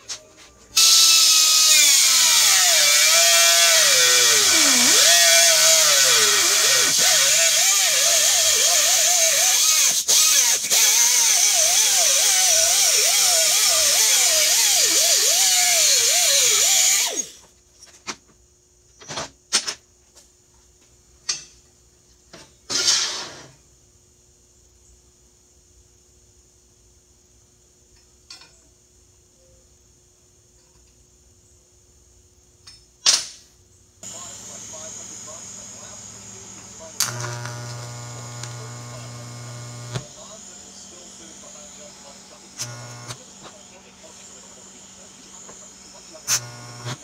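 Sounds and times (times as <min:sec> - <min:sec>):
angle grinder cutting steel: 0:00.8 - 0:17.3, 0:34.0 - 0:47.0.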